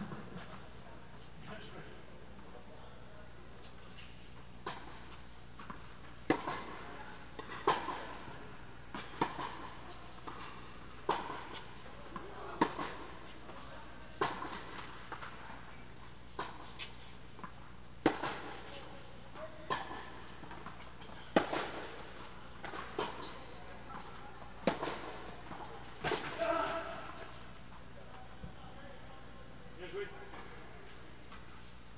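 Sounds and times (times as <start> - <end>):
tennis ball hit with racquets: 4.6 - 13.2, 17.4 - 18.7, 19.6 - 27.3.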